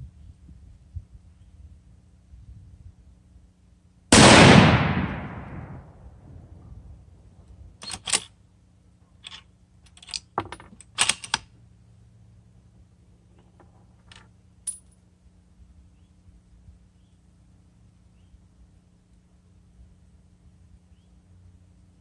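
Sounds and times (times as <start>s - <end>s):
rifle bolt clicking and clacking: 7.8s - 8.3s, 9.2s - 11.5s.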